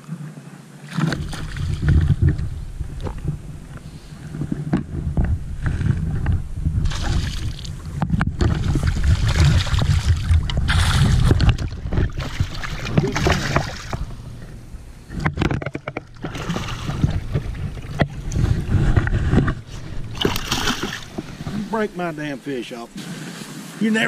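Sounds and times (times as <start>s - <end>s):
steady low rumble: 1.2s - 23.0s
fish splashing at water surface: 8.5s - 14.1s, 16.2s - 18.0s, 20.1s - 21.3s.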